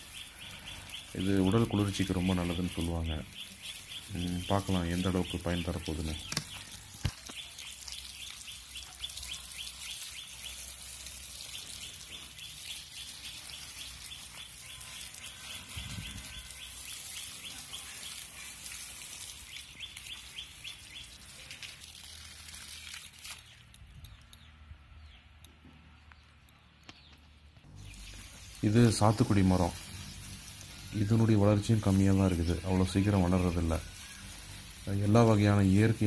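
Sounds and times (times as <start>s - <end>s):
hose water splashing on soil: 0.0s - 24.2s, 26.9s - 36.0s
rapid chirps: 27.7s - 36.0s.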